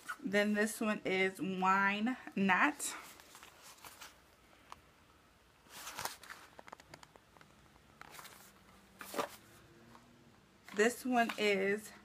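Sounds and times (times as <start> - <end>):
cardboard rustle: 8.1 - 9.5.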